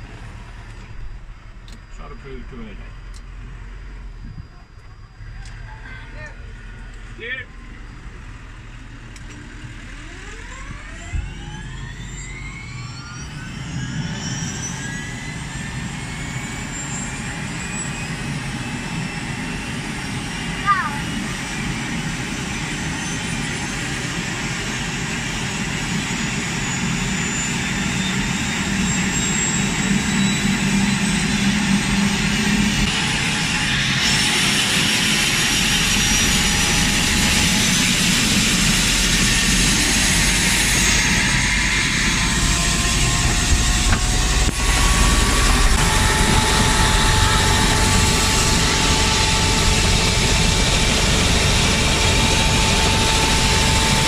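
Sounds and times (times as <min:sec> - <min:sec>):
deep rotor rumble: 0:00.0 - 0:54.0
turbine engine whine: 0:00.0 - 0:54.0
hissing jet noise: 0:31.2 - 0:54.0.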